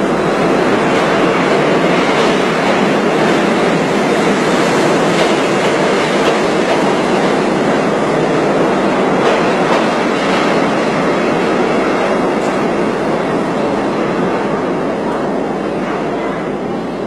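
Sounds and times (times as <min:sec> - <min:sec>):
subway train on rails: 0:00.0 - 0:17.0.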